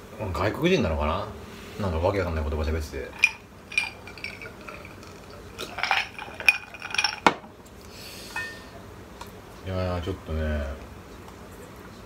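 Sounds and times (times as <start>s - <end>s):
ice cubes clinking in a glass: 3.1s - 7.4s.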